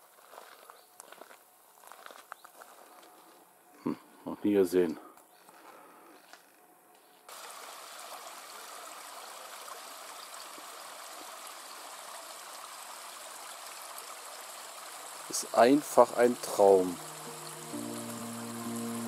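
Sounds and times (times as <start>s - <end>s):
stream water rushing: 7.3s - 19.0s.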